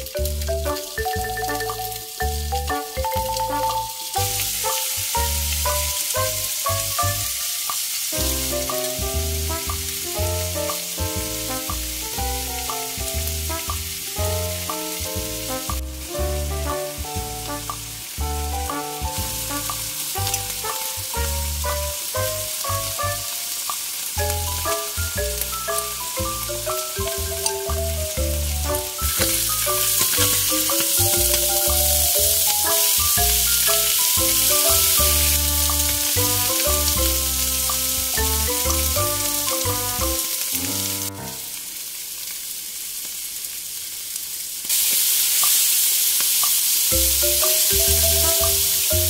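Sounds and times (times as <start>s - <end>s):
background music with a beat: 0.0s - 41.6s, 47.0s - 49.0s
fish sizzling in a grill pan: 0.0s - 49.0s.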